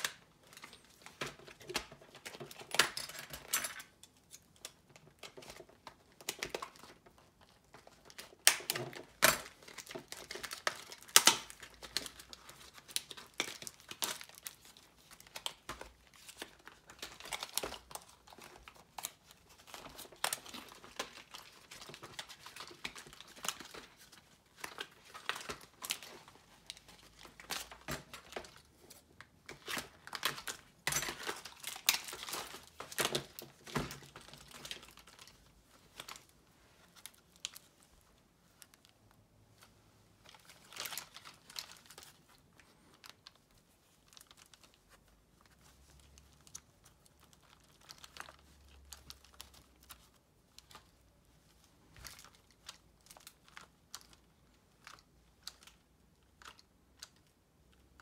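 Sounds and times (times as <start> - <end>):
furry toy cover rustling: 0.0 - 58.0.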